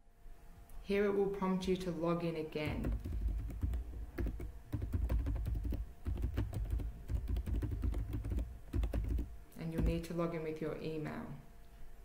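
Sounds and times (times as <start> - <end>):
typing on computer keyboard: 2.7 - 10.1.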